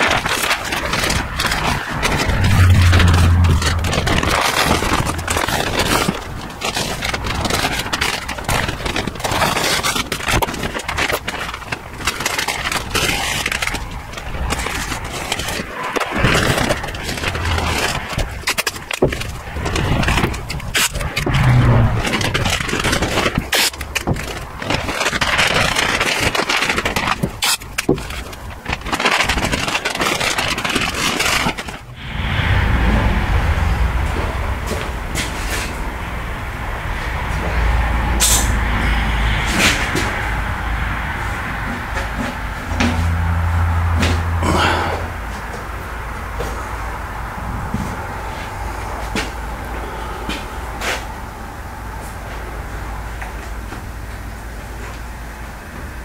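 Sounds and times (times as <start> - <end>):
paper crinkling and rustling: 0.0 - 32.0
scraping and crackling handling: 0.0 - 32.0.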